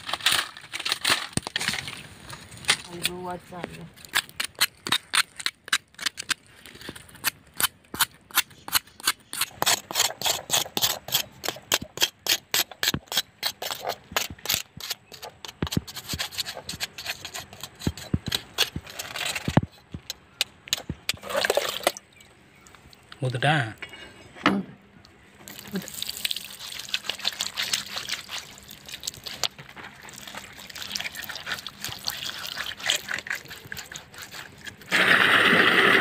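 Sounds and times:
knife scraping charred skin: 4.0 - 21.7, 25.5 - 35.1.

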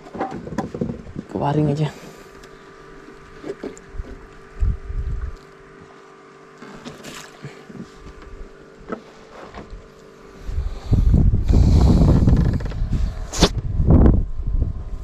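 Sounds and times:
knocks and thuds on a boat: 0.0 - 1.4, 11.8 - 13.0
short sharp rush: 13.2 - 13.6.

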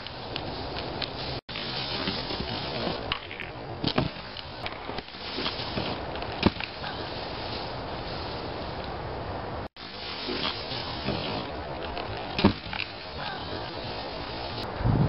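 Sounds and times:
snowboard scraping over snow: 0.0 - 3.2, 3.8 - 8.8, 9.8 - 14.6.

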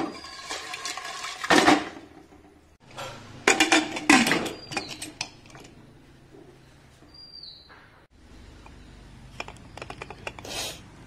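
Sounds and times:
pot lid clanking on metal pot: 3.4 - 5.7.

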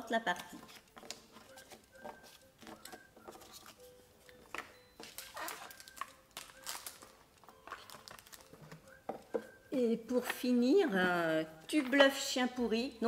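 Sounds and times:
plastic bag crinkling: 5.0 - 8.7.

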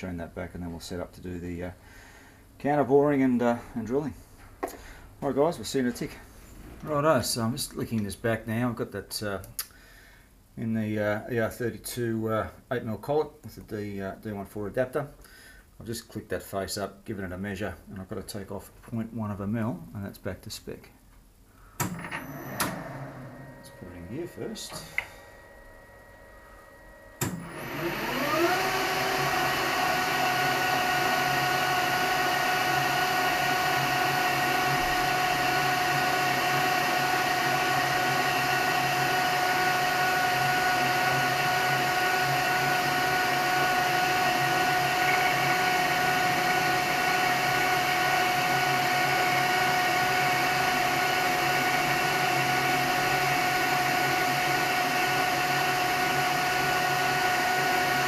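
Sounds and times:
metal lathe motor whine: 22.0 - 58.0.

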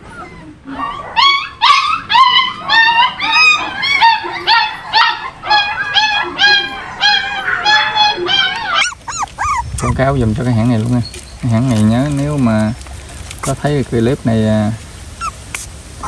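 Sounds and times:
puppy yelping and whining: 0.0 - 12.0, 15.1 - 15.7.

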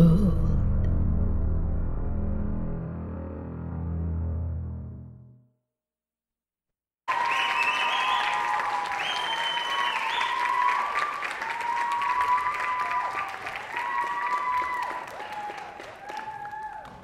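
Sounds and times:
audience applause: 7.1 - 17.0
high-pitched whoops and cheers: 7.1 - 17.0.

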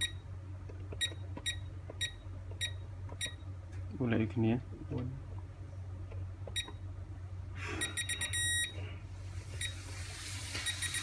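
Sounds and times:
keypad beeping: 1.0 - 3.4, 6.5 - 6.8, 7.8 - 8.8, 10.6 - 11.0
longer keypad tone: 7.8 - 8.8.

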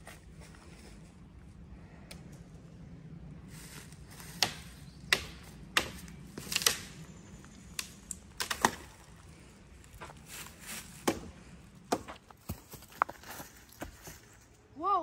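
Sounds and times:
footsteps on dry leaves and sticks: 3.5 - 14.6.

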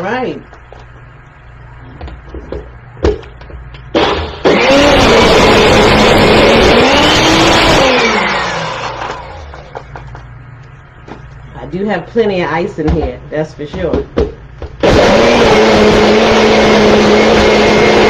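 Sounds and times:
blender crushing ice: 4.0 - 9.6, 14.8 - 18.0.

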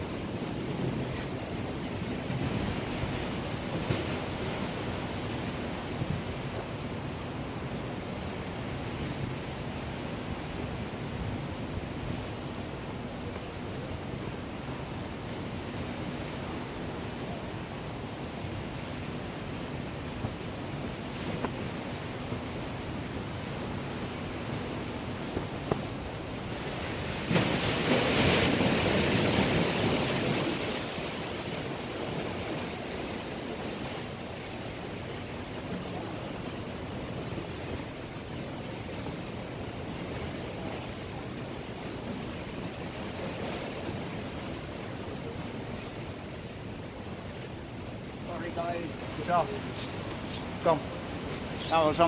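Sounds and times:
wind buffeting microphone: 10.2 - 34.1.

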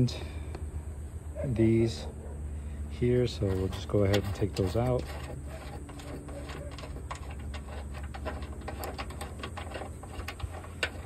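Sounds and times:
steady low hum: 0.0 - 11.0
metal bolt clicking and scraping: 3.3 - 11.0.

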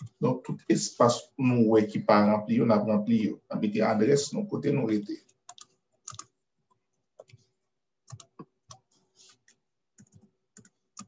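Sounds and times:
typing on computer keyboard: 5.5 - 6.4, 8.1 - 11.0.

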